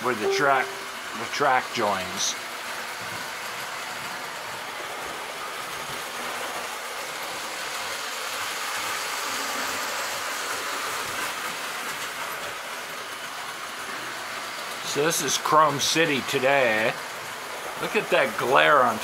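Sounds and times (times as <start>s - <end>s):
toy train motor hum: 0.9s - 19.0s.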